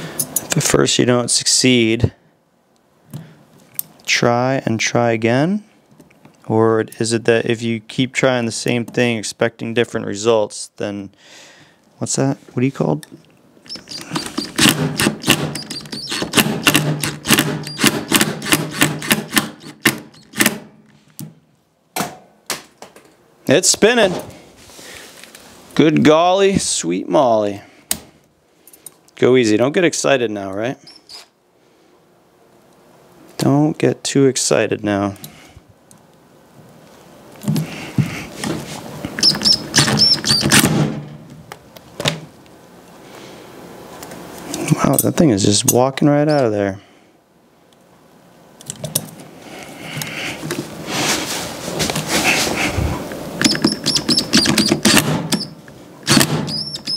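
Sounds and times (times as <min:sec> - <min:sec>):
high squeaks: 0:13.7 - 0:14.6, 0:15.5 - 0:16.4, 0:30.8 - 0:31.3, 0:39.2 - 0:40.6, 0:53.4 - 0:55.5, 0:56.5 - 0:56.9
cordless drill running: 0:13.7 - 0:20.4
impact driver hammering: 0:13.9 - 0:20.8, 0:53.4 - 0:56.9.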